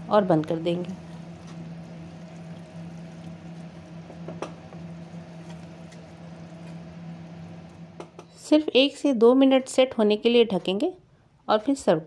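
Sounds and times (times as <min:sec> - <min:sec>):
low hum: 0:00.0 - 0:08.8.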